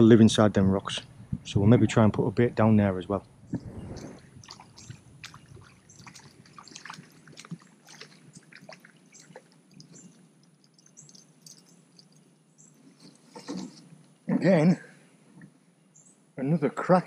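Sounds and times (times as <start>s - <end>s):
grass rustling: 3.5s - 14.1s
fish splashing in water: 3.8s - 12.2s.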